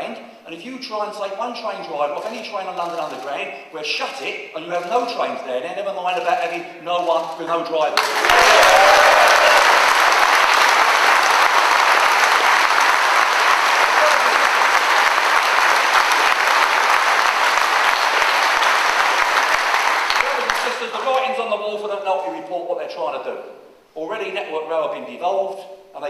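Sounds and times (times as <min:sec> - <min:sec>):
large crowd applauding: 0:08.0 - 0:21.1.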